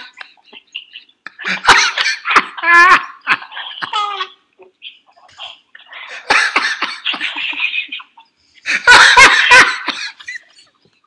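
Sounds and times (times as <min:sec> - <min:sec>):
people laughing hard: 0:00.0 - 0:03.8, 0:06.1 - 0:10.8.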